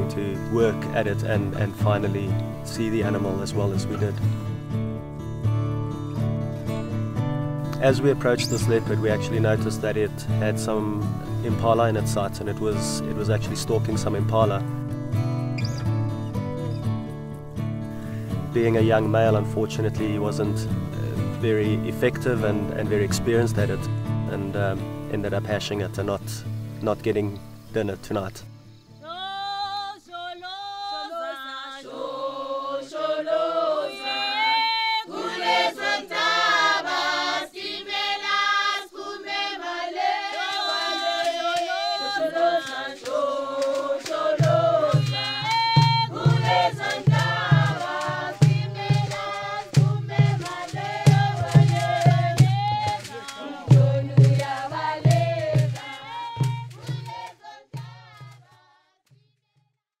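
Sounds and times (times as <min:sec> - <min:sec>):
choir singing in harmony: 0:29.0 - 0:58.5
low drum beat: 0:44.4 - 0:57.1.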